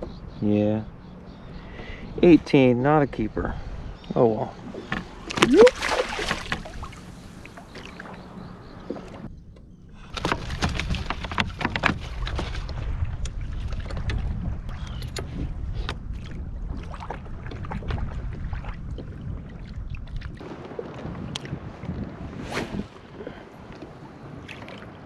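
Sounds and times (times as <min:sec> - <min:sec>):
water against hull: 0:04.2 - 0:25.0
wind on microphone: 0:09.3 - 0:25.0.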